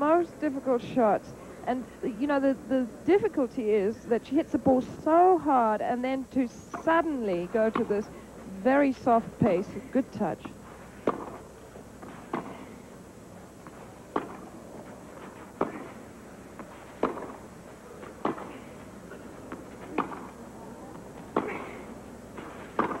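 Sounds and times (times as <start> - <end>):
low background hiss: 0.0 - 23.0
tennis ball racquet hits: 10.4 - 12.8, 13.6 - 23.0.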